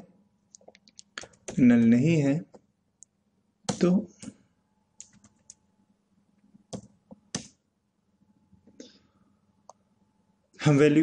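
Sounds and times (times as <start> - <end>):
computer keyboard keystrokes: 5.0 - 5.6, 6.7 - 7.6.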